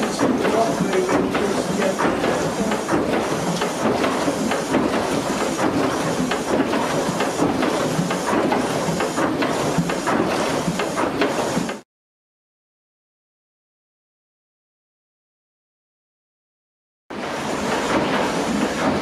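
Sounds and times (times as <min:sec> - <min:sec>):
steam engine clattering: 0:00.0 - 0:11.8, 0:17.2 - 0:19.0.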